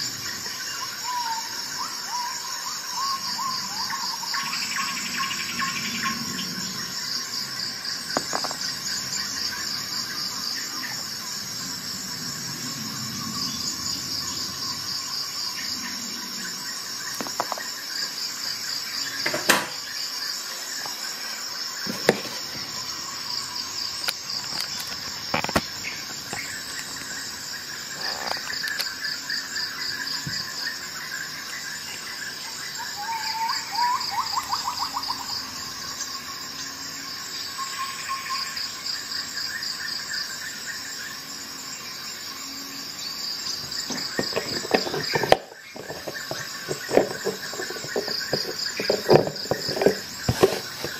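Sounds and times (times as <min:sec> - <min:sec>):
cricket chirping: 0:00.0 - 0:50.9
sharp clicks and knocks: 0:43.9 - 0:50.9.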